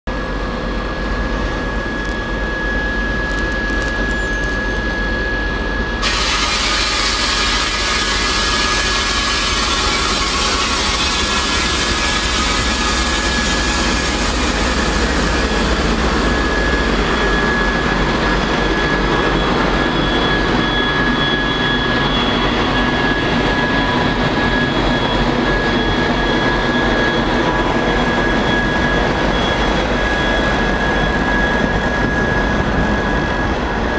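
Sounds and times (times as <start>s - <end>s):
diesel locomotive engine whine: 0.1s - 33.9s.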